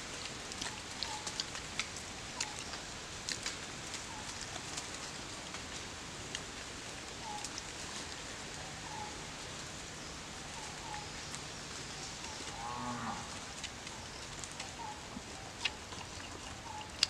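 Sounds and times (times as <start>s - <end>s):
small chirps: 13.6s - 17.0s.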